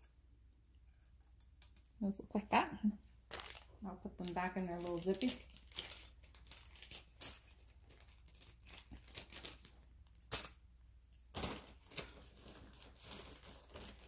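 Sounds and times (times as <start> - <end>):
plastic bag crinkling: 3.2 - 10.3, 11.3 - 14.0.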